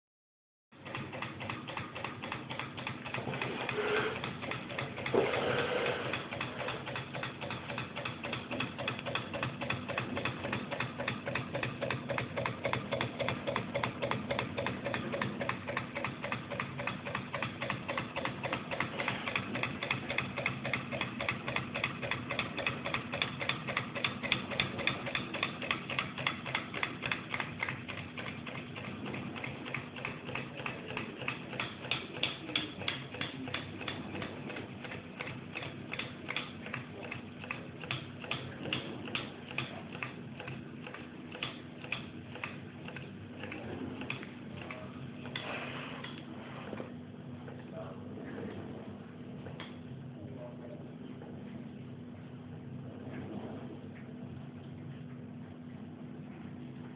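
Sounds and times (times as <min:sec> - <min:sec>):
small engine clicking rhythmically: 0:00.7 - 0:46.2.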